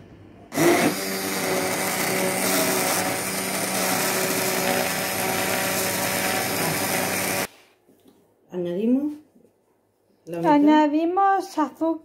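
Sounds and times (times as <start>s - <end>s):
electric hand blender running: 0.5s - 7.5s.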